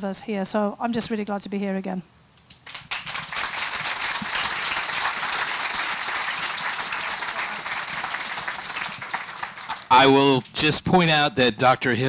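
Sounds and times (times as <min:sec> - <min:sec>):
audience applauding: 0:02.6 - 0:10.6.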